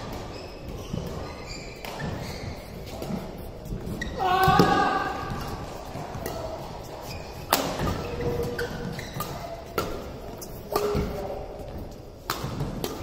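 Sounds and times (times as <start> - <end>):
shoes squeaking on court: 0.0 - 13.0
rackets striking shuttlecock: 4.5 - 13.0.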